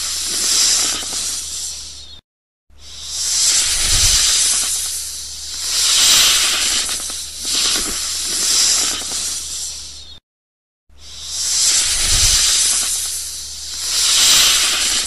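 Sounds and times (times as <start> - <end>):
snake hissing: 0.0 - 2.2, 2.8 - 10.2, 10.9 - 15.0.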